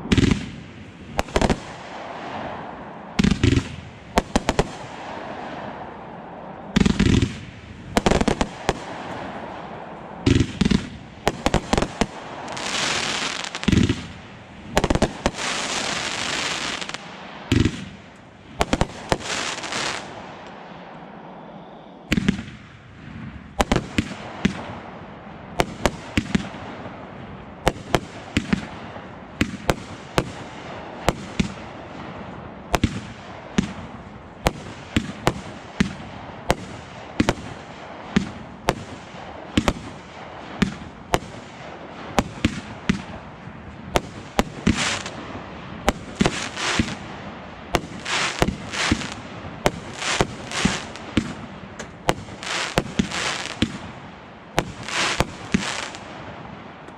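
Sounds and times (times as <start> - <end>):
fireworks crackling hiss: 6.8 - 20.6, 43.9 - 56.4
firework shells bursting: 47.8 - 53.8, 54.6 - 56.1.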